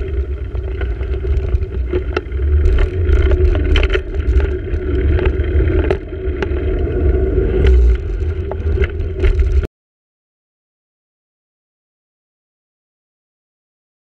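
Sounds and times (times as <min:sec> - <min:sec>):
bike rattling over paving: 0:00.0 - 0:09.7
wind buffeting microphone: 0:00.0 - 0:09.7.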